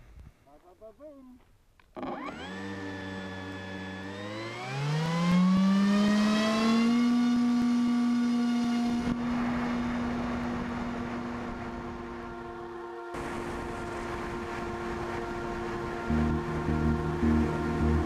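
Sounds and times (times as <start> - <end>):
electric motor and propeller whine: 2.0 - 18.0
rush of airflow: 9.1 - 16.7.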